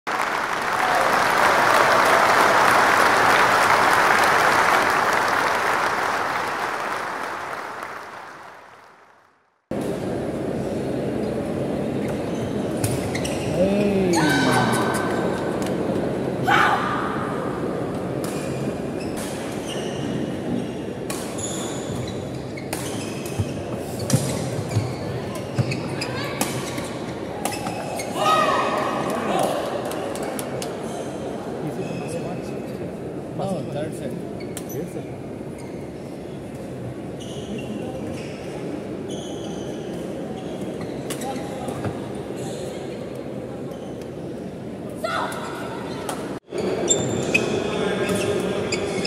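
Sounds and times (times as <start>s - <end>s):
large crowd applauding: 0.1s - 9.4s
sports hall murmur: 0.1s - 49.0s.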